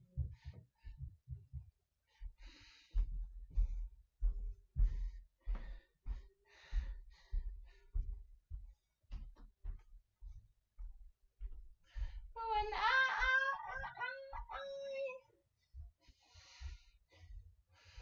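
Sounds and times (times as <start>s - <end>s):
dull low thump: 0.0s - 2.4s
woman breathing hard: 2.1s - 8.6s, 11.8s - 12.4s, 16.0s - 18.0s.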